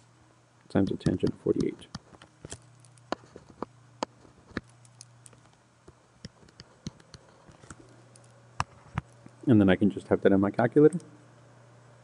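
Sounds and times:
faint low hum: 0.0 - 12.0
light clicks and taps: 0.6 - 9.4.

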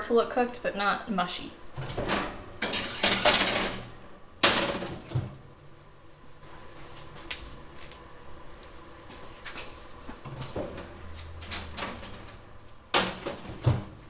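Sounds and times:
oven door shutting: 1.8 - 5.5.

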